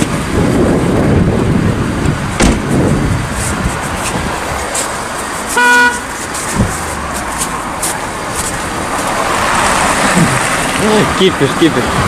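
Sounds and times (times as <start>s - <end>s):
road traffic rumble: 0.0s - 12.0s
sharp knock: 2.4s - 2.7s.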